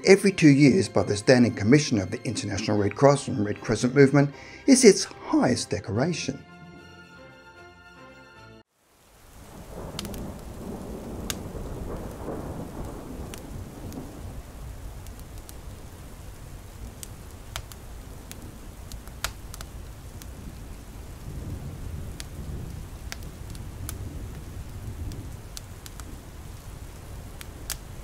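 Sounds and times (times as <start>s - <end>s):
rain hissing: 4.2s - 5.1s, 8.6s - 28.0s
wood fire crackling: 8.6s - 28.0s
low rumbling thunder: 9.4s - 28.0s.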